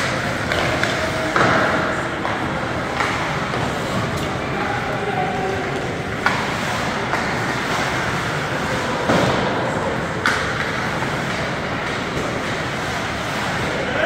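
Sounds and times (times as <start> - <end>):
sharp knocks of hockey play: 0.0 - 13.8
crowd noise: 0.0 - 14.0
skates on ice: 0.0 - 14.0.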